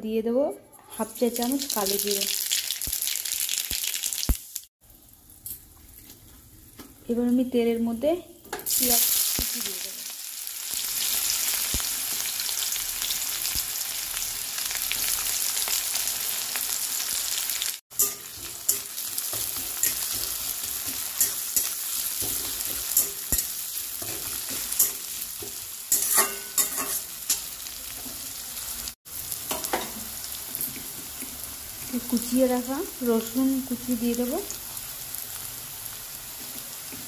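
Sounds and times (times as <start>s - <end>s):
onion sizzling in hot oil: 1.0s - 37.0s
metal spatula scraping pan: 18.0s - 27.5s.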